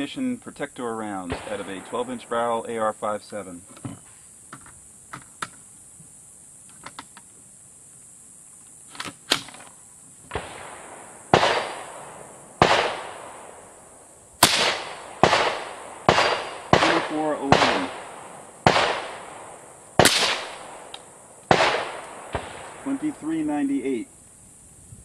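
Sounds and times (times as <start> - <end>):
rifle shots echoing: 1.2 - 2.9, 10.3 - 24.0.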